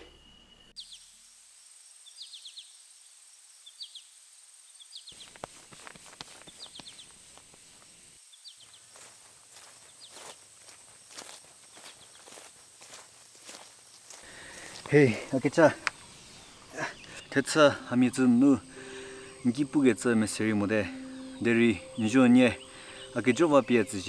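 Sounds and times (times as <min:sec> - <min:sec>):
high insect whine: 0:00.0 - 0:24.0
small bird chirping: 0:02.0 - 0:02.8, 0:03.6 - 0:07.5, 0:08.3 - 0:10.4, 0:11.7 - 0:12.5, 0:14.5 - 0:17.6
footsteps on leaf litter: 0:05.2 - 0:08.0, 0:08.6 - 0:16.7.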